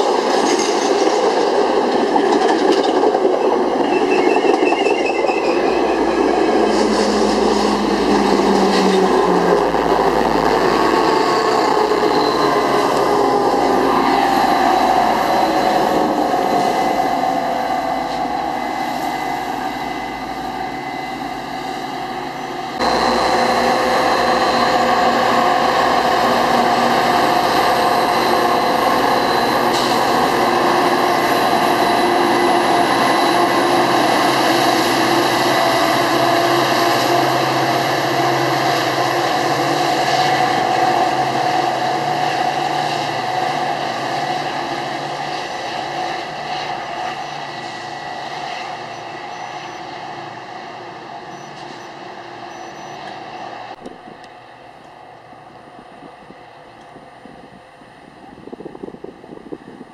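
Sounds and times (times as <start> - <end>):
diesel locomotive engine: 0.0 - 59.9
train wheels rumbling on rail: 0.0 - 59.9
steady tones: 4.9 - 38.2.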